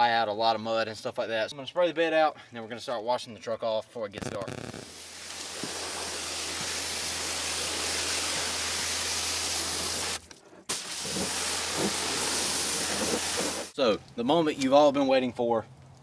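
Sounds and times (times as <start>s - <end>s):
pressure washer jet hissing: 4.5s - 13.7s.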